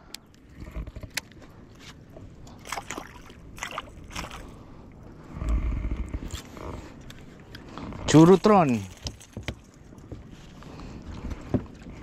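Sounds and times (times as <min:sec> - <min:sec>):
water splashing against boat: 0:02.1 - 0:05.3
low rumble: 0:04.0 - 0:08.1.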